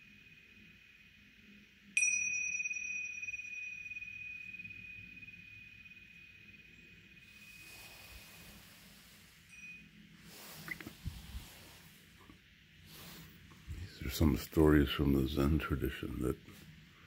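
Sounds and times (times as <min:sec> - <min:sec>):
tingsha cymbals ringing: 0:00.0 - 0:12.2.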